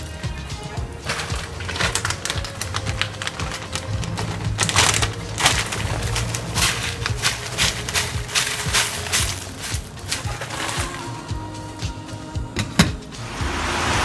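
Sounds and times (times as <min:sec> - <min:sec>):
plastic bag crinkling: 0:00.8 - 0:11.3.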